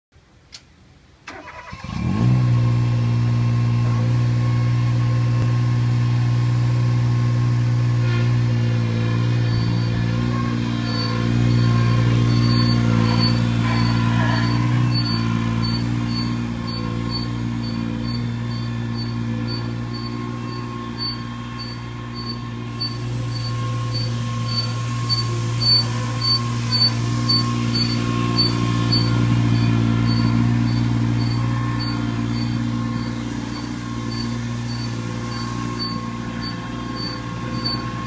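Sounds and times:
sweeper engine cranking and running: 1.3s - 38.0s
short high beeps: 10.8s - 37.9s.

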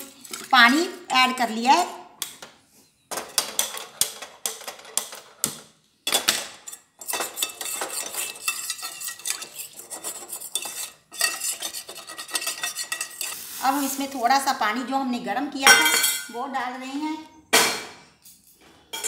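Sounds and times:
spoon scraping frying pan: 6.5s - 14.2s.

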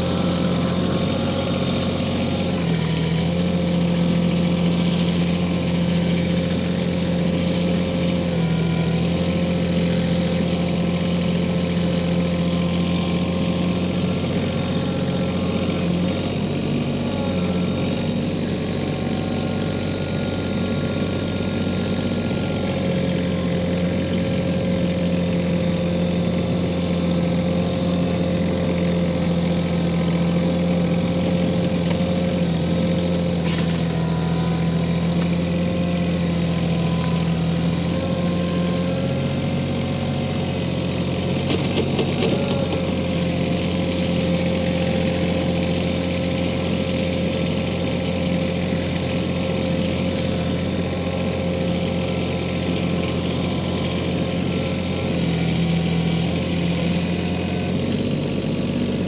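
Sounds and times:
tractor clatter: 0.0s - 59.0s
tractor diesel engine running: 0.0s - 59.0s.

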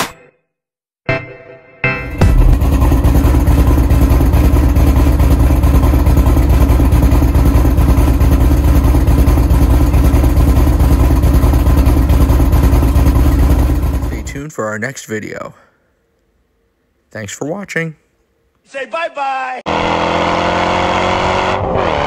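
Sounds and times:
car engine idling burble: 2.1s - 14.4s.

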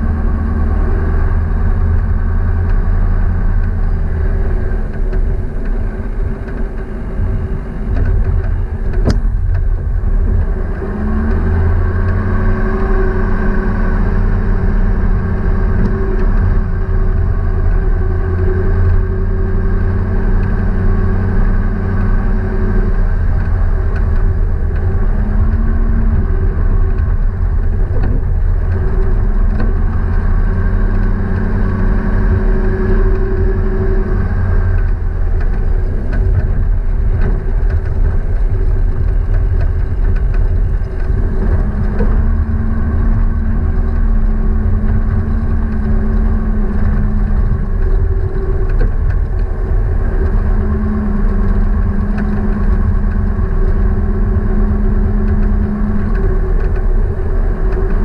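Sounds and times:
hum: 0.0s - 58.0s
vehicle engine rumble: 0.0s - 58.0s.

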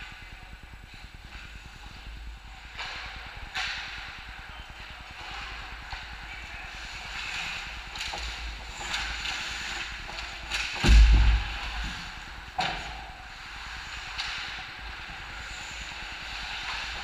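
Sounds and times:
skates scraping ice: 5.0s - 11.0s
loud heavy thump: 10.8s - 12.8s.

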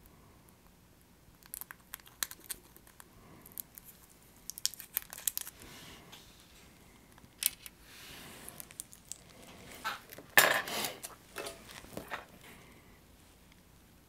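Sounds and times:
plastic packaging crinkling: 1.4s - 5.6s.

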